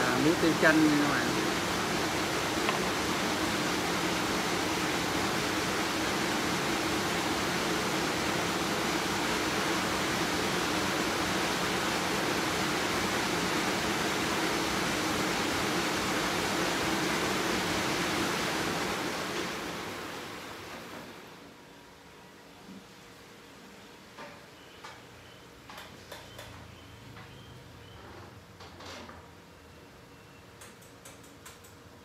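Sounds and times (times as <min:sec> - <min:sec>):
workshop machinery running: 0:00.0 - 0:21.6.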